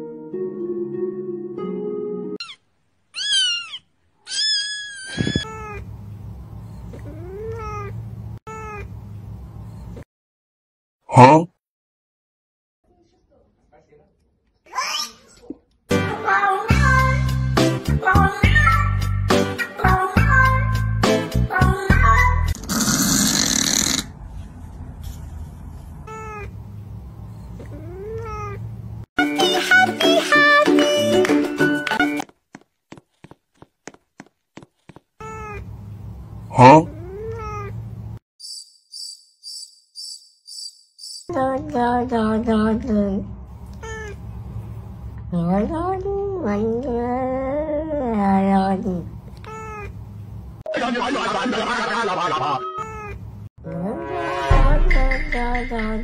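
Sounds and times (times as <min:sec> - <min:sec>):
cat meowing: 0:03.2 - 0:05.8, 0:43.7 - 0:44.2.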